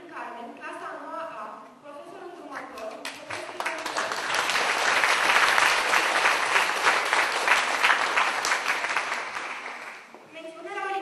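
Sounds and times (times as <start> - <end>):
audience applauding: 3.1 - 10.1.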